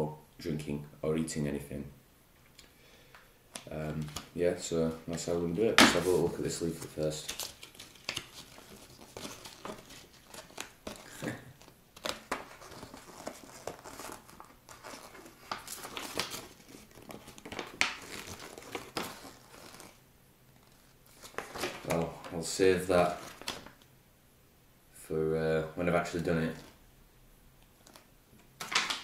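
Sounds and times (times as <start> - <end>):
paper and foil packaging crinkling: 5.9 - 20.0, 20.6 - 23.8, 27.8 - 28.1.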